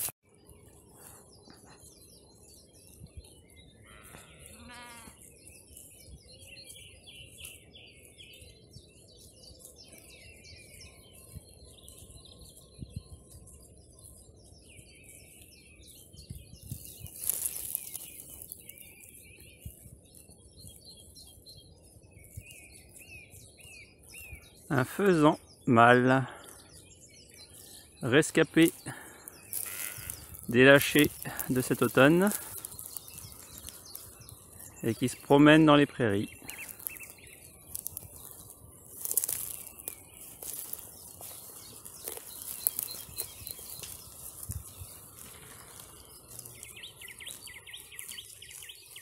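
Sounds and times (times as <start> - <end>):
small birds chirping: 0.0 - 49.0
sheep bleating: 3.8 - 5.2, 29.5 - 30.3.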